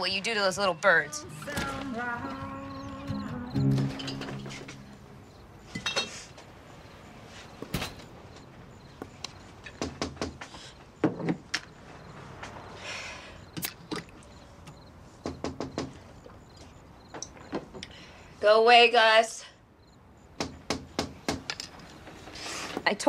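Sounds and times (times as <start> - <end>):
knocks: 9.7 - 11.7, 15.2 - 16.0, 20.4 - 21.7.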